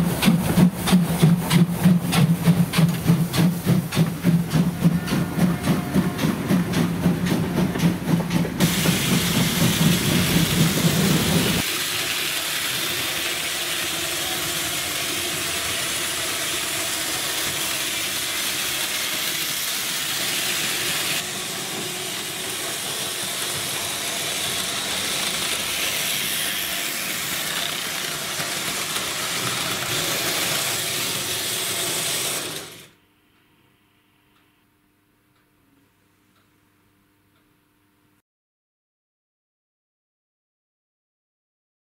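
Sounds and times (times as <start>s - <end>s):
steam locomotive exhaust beat: 0.0s - 32.8s
steam hissing: 0.0s - 32.9s.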